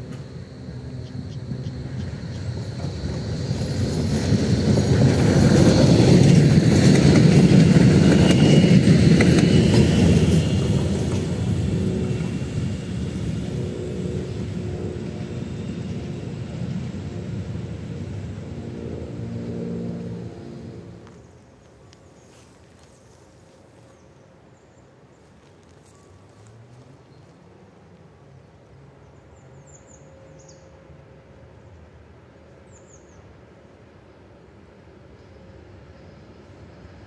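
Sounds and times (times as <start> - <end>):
tram wheels rumbling on rails: 0.0 - 24.0.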